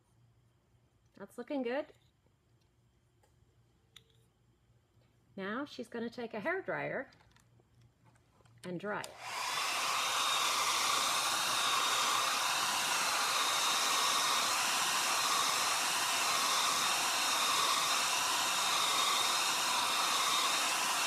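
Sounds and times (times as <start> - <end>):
hair dryer running: 9.0 - 21.0.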